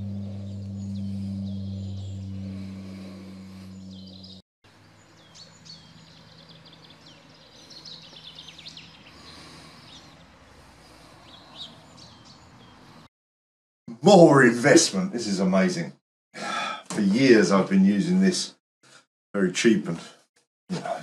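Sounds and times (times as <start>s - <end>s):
steady low hum: 0.0s - 4.8s
songbirds chirping: 0.0s - 13.1s.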